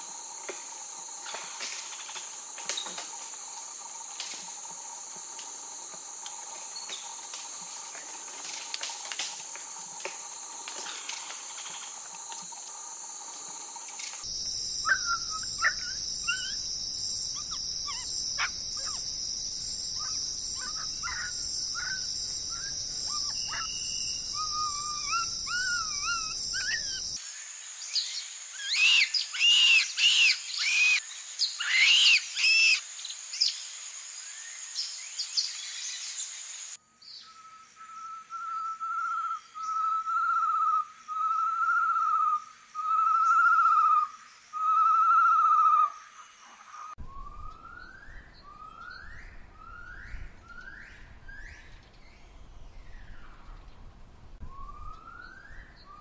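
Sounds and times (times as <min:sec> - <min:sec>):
high insect drone: 0:00.0 - 0:47.0
rapid sweeping bird calls: 0:14.8 - 0:16.6, 0:20.0 - 0:27.2, 0:28.6 - 0:32.8
short chirping bird calls: 0:20.0 - 0:27.0.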